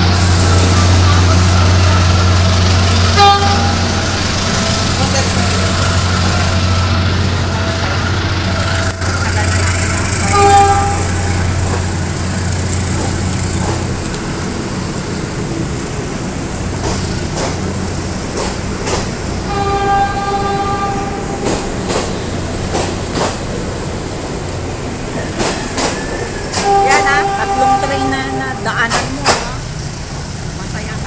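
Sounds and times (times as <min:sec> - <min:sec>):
train horn: 0:00.0 - 0:12.1, 0:19.4 - 0:21.6, 0:26.5 - 0:29.1
passenger train rumbling past: 0:00.0 - 0:31.0.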